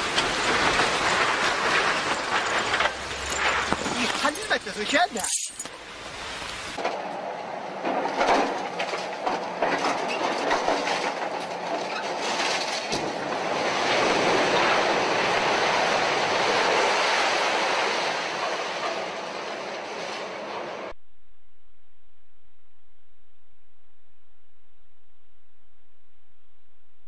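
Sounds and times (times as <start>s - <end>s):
excavator demolishing concrete: 0.0s - 5.7s, 7.8s - 20.8s
debris crunching and clattering: 0.0s - 5.8s, 7.8s - 20.5s
collapsing rubble rush: 0.0s - 20.9s.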